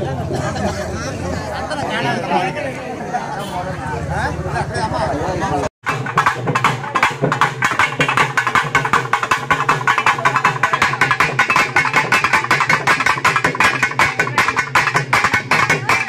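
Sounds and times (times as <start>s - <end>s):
fast drumming: 5.8s - 16.0s.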